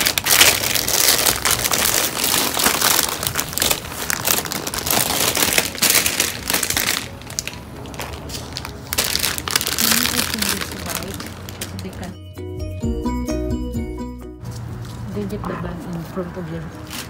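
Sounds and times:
plastic bags crinkling: 0.0s - 12.2s.

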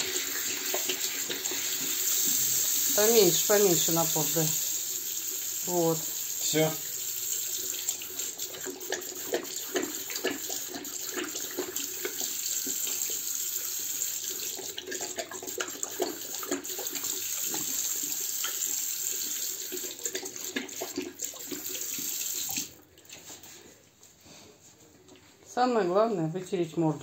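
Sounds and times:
dog lapping water: 0.0s - 3.3s, 6.8s - 13.3s, 14.0s - 23.2s.

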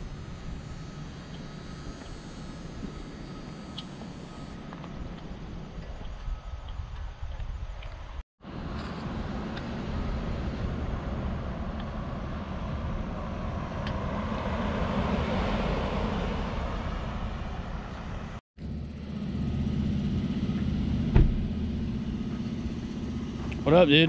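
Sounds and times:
low engine hum: 0.0s - 24.0s
pickup truck driving past: 8.6s - 23.9s.

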